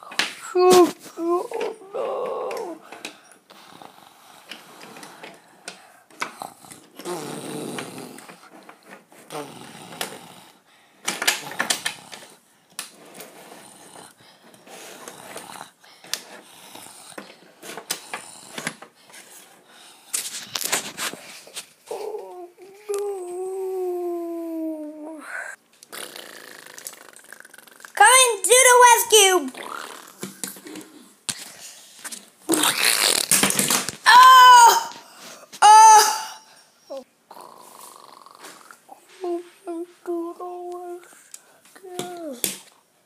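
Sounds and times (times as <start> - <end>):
child's growly mouth noises: 0.0 - 2.9, 6.3 - 8.5, 9.3 - 10.4, 21.9 - 28.2, 29.4 - 31.1, 32.5 - 33.4, 34.0 - 41.2, 41.8 - 42.6.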